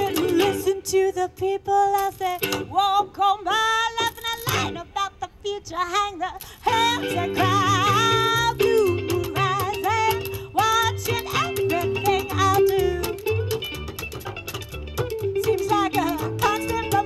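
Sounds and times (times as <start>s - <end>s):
mandolin: 0.0s - 5.0s, 6.4s - 17.0s
woman singing with vibrato: 0.0s - 13.4s, 15.3s - 17.0s
upright bass: 6.7s - 17.0s.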